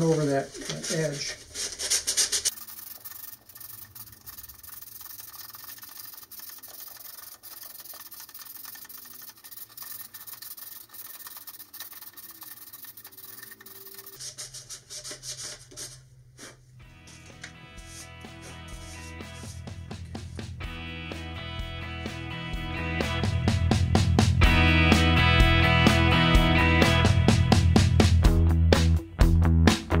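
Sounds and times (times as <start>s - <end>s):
sandpaper rubbing back and forth: 0.8s - 19.6s.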